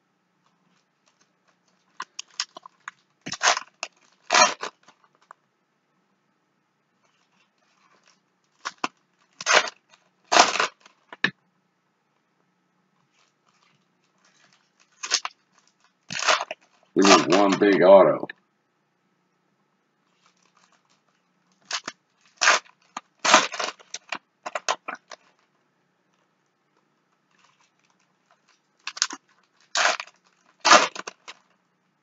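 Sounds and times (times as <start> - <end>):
foil wrappers crinkling and tearing: 1.8 - 5.1, 7.6 - 11.0, 13.1 - 17.6, 20.1 - 25.4, 27.3 - 31.5.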